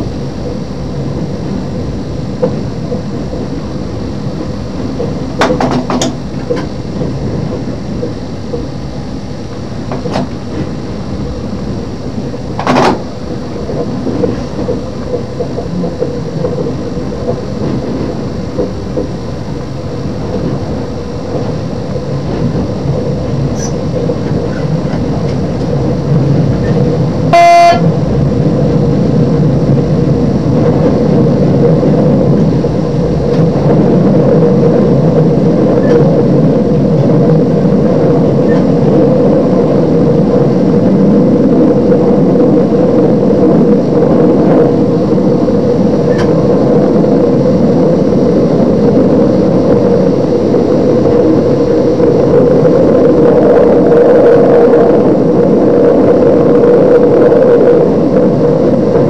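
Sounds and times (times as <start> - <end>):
train engine and wheels on rails: 0.0 - 59.0
train horn toot: 27.3 - 28.0.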